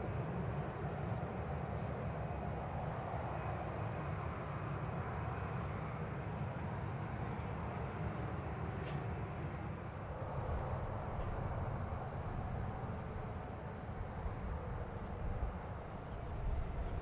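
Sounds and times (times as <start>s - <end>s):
jet engines rumbling: 0.0s - 17.0s
faint click: 8.8s - 9.0s.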